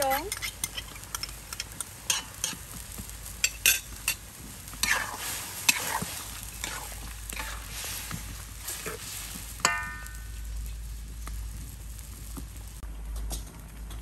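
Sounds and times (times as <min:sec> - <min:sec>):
food sizzling: 0:00.0 - 0:12.8
metal ladle scraping a wok: 0:00.3 - 0:02.6, 0:04.8 - 0:10.4.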